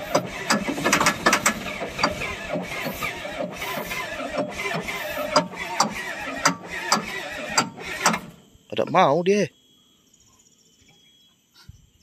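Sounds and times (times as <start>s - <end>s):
diesel engine cranking and knocking: 0.0s - 8.4s.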